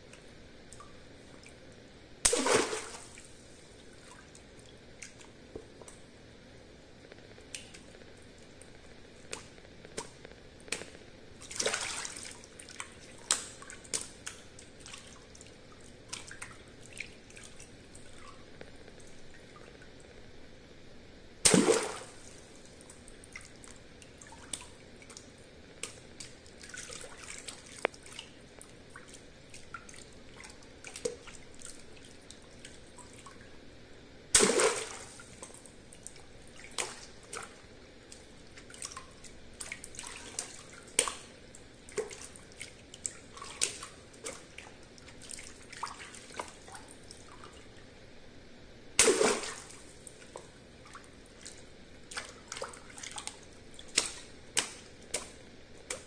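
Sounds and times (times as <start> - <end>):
water dripping: 0.0 - 6.2, 7.1 - 20.2, 21.4 - 33.6, 34.3 - 47.9, 49.0 - 56.0
water balloons popping: 2.2 - 3.1
water splashing: 2.2 - 4.4, 10.7 - 19.8, 21.4 - 33.4, 34.3 - 47.8, 49.0 - 56.0.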